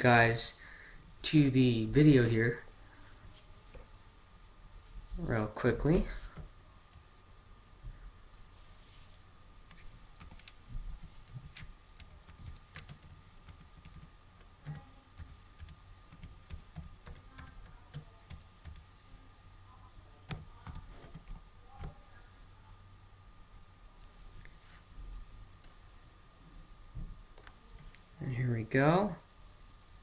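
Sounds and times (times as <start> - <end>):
keyboard typing: 9.6 - 18.9, 20.2 - 22.0.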